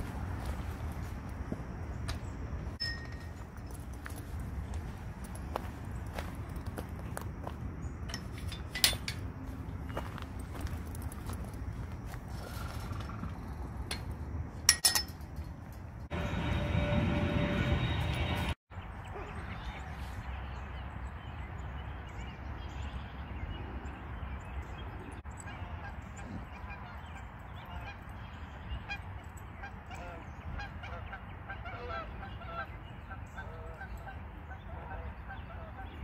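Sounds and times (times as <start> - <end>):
steady low rumble: 0.0 - 18.6
distant honking bird calls: 25.4 - 36.0.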